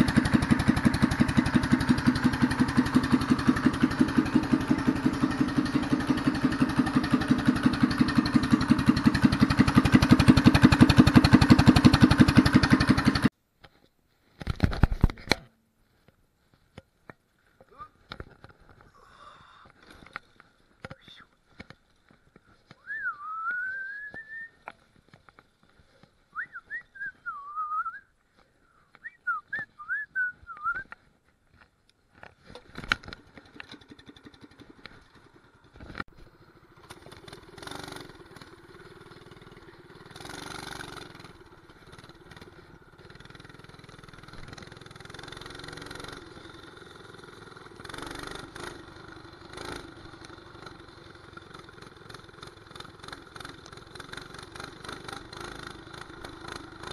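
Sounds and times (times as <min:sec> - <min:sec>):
mini bike engine running: 0:00.0 - 0:13.3, 0:32.2 - 0:56.9
person whistling a tune: 0:22.8 - 0:24.6, 0:26.3 - 0:28.1, 0:29.0 - 0:30.9.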